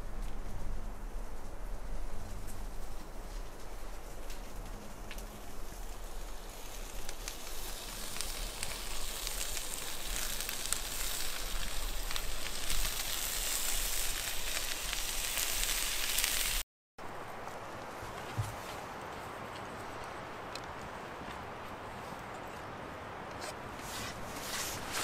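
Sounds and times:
burning wood crackling: 0:00.0 - 0:25.0
food sizzling in frying pan: 0:06.1 - 0:16.6.

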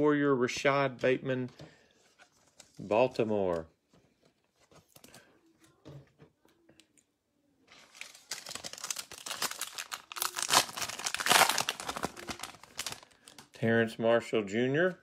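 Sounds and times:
foil pack crinkling and tearing: 0:07.8 - 0:13.5.

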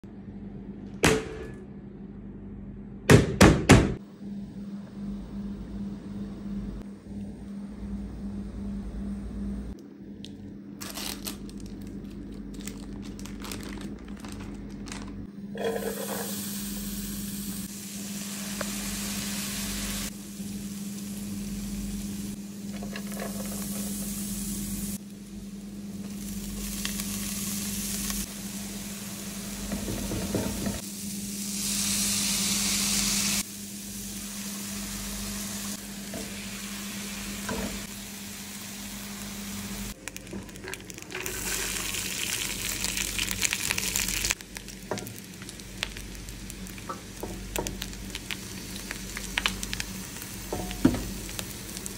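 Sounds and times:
steady low hum: 0:00.0 - 0:03.1, 0:04.0 - 0:51.9
food sizzling in a frying pan: 0:15.5 - 0:51.9
spoon scraping a pan: 0:15.6 - 0:16.4.

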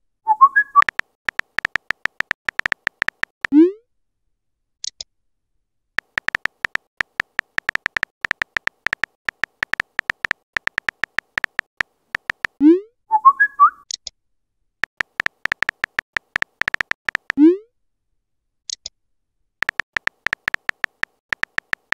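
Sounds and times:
phone keyboard tap clicks: 0:00.8 - 0:03.5, 0:06.0 - 0:12.6, 0:14.8 - 0:17.4, 0:19.6 - 0:21.9.

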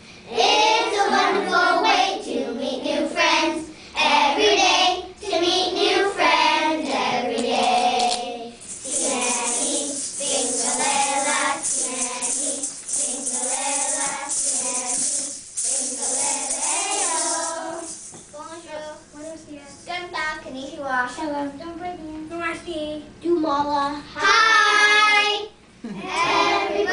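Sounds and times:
children's choir singing: 0:00.4 - 0:03.6, 0:05.4 - 0:18.0
maracas shaking: 0:07.6 - 0:19.5.

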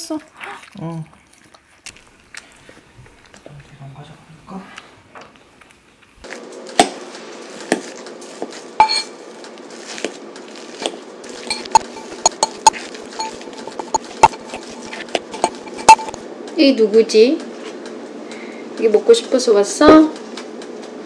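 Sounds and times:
fork clinking against glass bowl: 0:08.8 - 0:09.2, 0:11.4 - 0:16.2.

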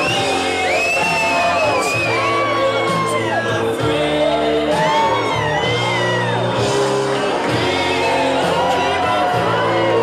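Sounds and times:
loud dance music: 0:00.0 - 0:10.0
people singing along and whooping: 0:00.0 - 0:10.0.

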